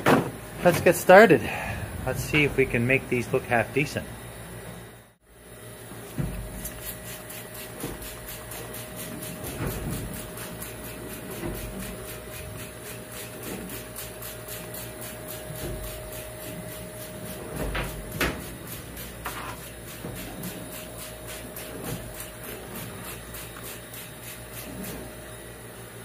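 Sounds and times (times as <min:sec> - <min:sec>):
steady hum: 0:00.4 - 0:05.2.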